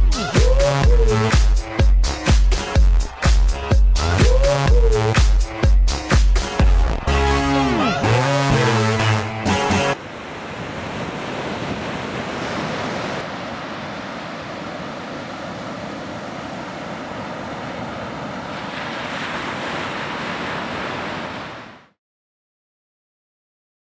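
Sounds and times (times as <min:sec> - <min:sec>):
ocean surf breaking: 0:10.0 - 0:22.0.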